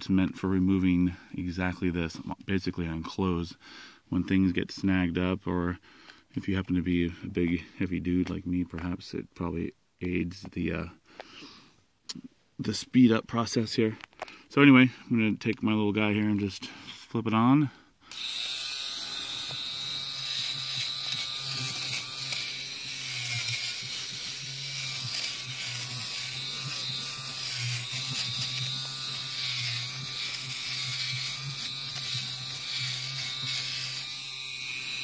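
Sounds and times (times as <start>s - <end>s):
fabric shaver motor buzzing: 18.1s - 35.0s.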